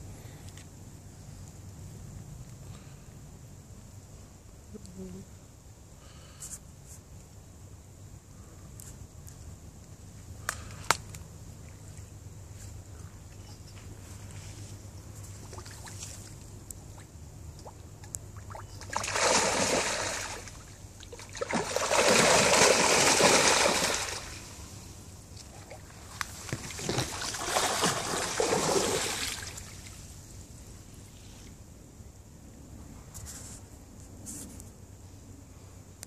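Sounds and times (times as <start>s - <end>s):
fish splashing in water: 18.4s - 24.6s, 25.6s - 29.9s.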